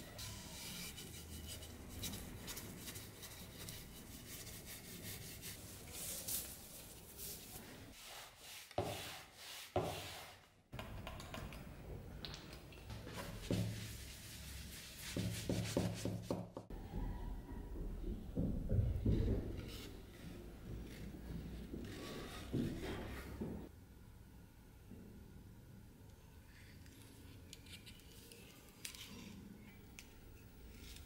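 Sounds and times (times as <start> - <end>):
cloth rubbing wooden handle: 13.1 - 16.4.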